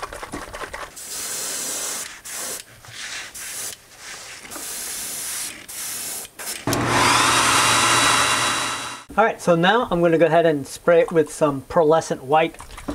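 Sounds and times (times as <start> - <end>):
airbrush hissing bursts: 1.0 - 2.6.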